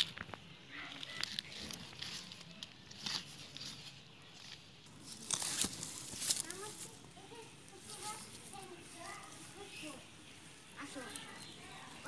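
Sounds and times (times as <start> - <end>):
tool digging in damp soil: 1.2 - 7.0.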